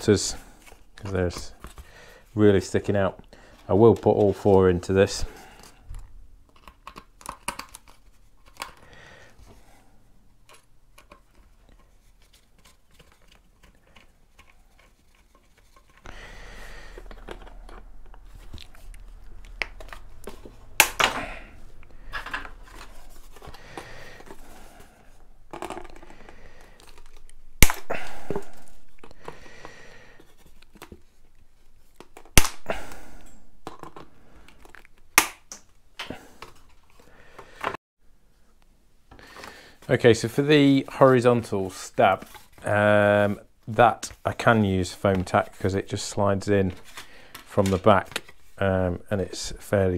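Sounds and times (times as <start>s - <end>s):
foam part rustling and creaking: 0.0s - 16.1s, 16.8s - 29.5s, 30.1s - 32.4s, 33.0s - 37.8s, 39.4s - 49.9s
side cutters snapping pins: 20.8s - 21.2s, 32.3s - 32.8s, 35.2s - 35.7s.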